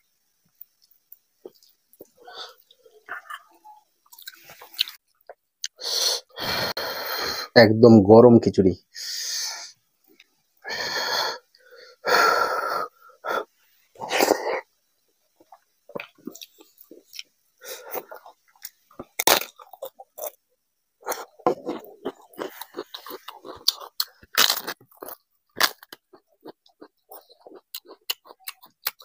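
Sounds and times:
wet chewing and mouth clicks: 0.6 - 5.8, 15.4 - 20.4, 21.0 - 29.0
man breathing out hissing breaths: 5.8 - 7.5, 8.9 - 9.8, 10.6 - 14.6.

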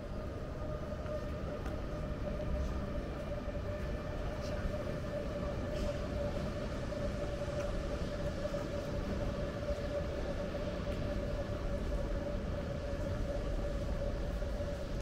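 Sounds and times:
faint light ticks: 7.5 - 7.8.

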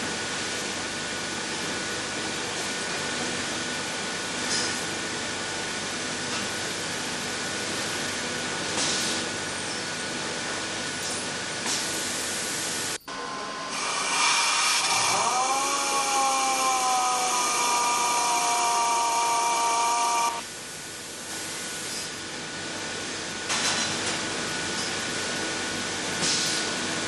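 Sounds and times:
pneumatic valve grinder whine: 13.0 - 20.5.

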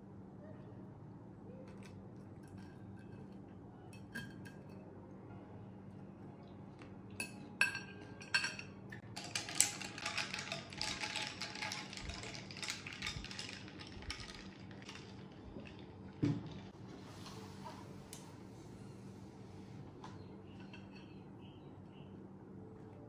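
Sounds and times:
straw stirring drink in glass: 9.1 - 16.7.

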